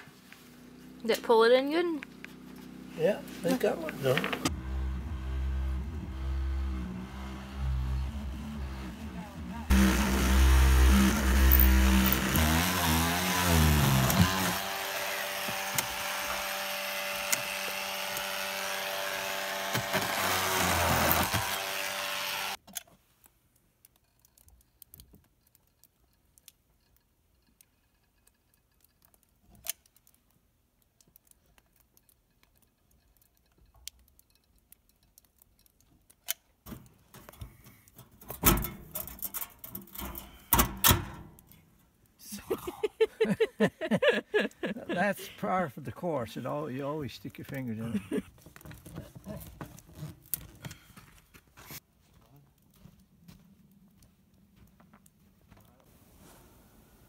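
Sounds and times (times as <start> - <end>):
handheld power tool motor: 9.7 - 22.6.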